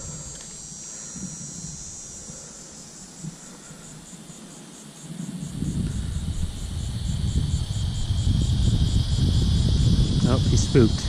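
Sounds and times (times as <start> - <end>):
insects trilling: 0.0 - 11.0
low rumbling on microphone: 5.2 - 11.0.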